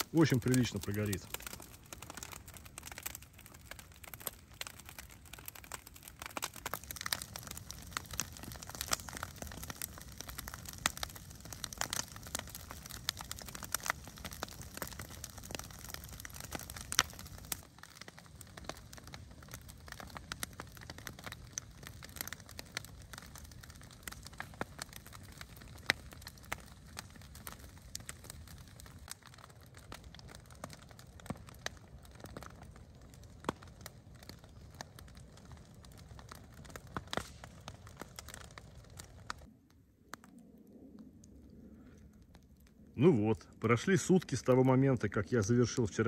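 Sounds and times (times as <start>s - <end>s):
sharp pops of burning wood: 0.0s - 40.4s
bonfire crackling: 0.0s - 46.0s.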